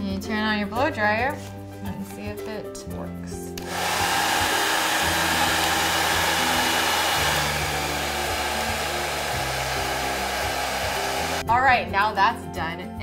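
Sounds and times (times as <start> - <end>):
hair dryer blowing air: 3.6 - 11.4.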